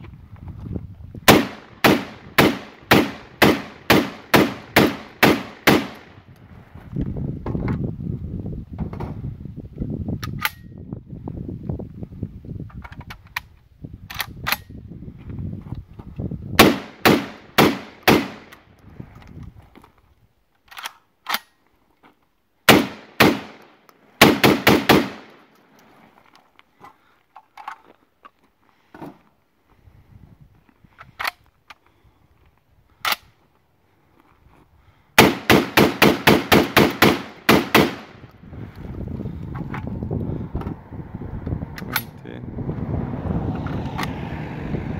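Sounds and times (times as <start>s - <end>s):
shotgun shots with echo: 1.3s - 6.1s, 16.6s - 18.5s, 22.7s - 25.4s, 35.2s - 38.2s.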